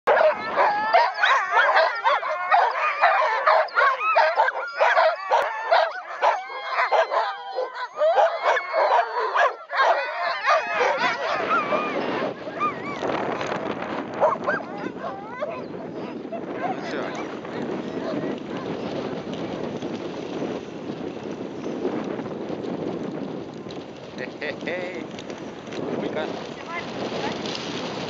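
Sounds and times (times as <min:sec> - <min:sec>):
sled dogs barking and howling: 0:00.1 - 0:21.4
sled rushing across snow: 0:00.1 - 0:28.0.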